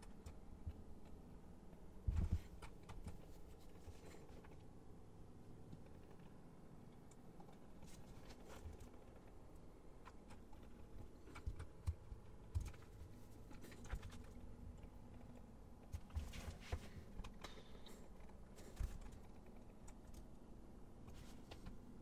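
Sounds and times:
keyboard and mouse clicks: 0.0s - 3.6s, 8.4s - 16.2s, 17.1s - 20.4s.

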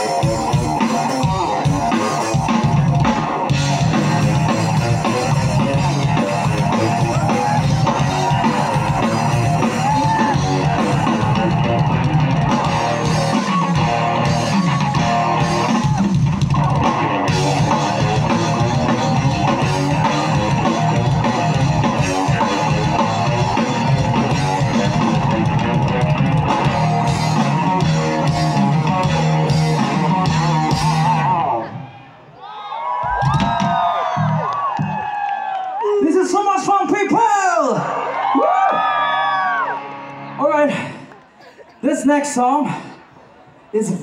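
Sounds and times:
drum kit: 0.0s - 31.6s, 33.0s - 35.1s
electric guitars: 0.0s - 32.0s, 38.0s - 40.8s
live rock band playing: 0.0s - 32.0s, 33.1s - 35.0s, 39.2s - 40.8s.

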